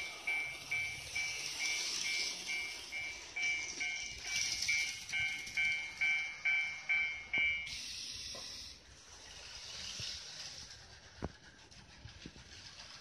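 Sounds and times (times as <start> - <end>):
level-crossing warning bell: 0.0 - 7.9.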